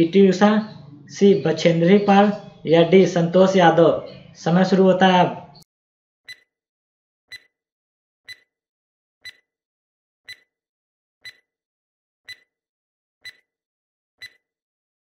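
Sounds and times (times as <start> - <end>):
clock-like ticks with ringing tone: 6.3 - 6.5, 7.3 - 7.5, 8.3 - 8.5, 9.2 - 9.5, 10.3 - 10.5, 11.2 - 11.5, 12.3 - 12.5, 13.2 - 13.5, 14.2 - 14.4.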